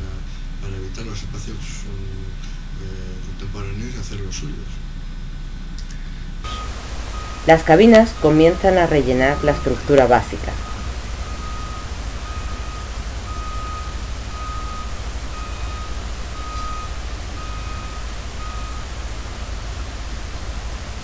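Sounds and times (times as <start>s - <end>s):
low rumble: 0.0s - 21.0s
reversing alarm beeping: 6.4s - 21.0s.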